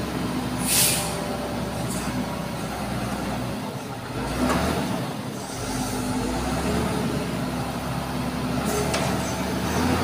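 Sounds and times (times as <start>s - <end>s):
short high hiss: 0.6s - 1.2s.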